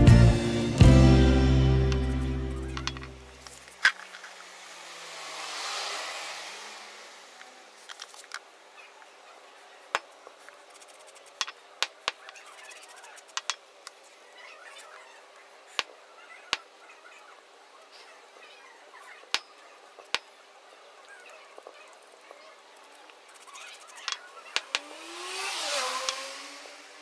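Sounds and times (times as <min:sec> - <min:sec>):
metallic tool clicks: 0:02.7 - 0:04.0
rushing swell: 0:04.6 - 0:07.6.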